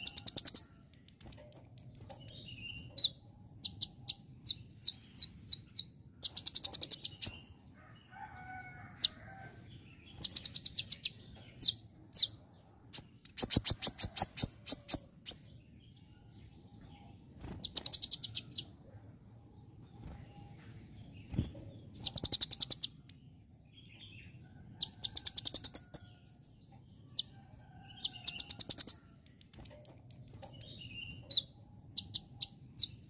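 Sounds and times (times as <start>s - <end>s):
bird chips and rattling trills: 0.0s - 7.4s, 13.0s - 15.4s, 17.4s - 18.7s, 21.3s - 23.2s, 27.1s - 33.0s.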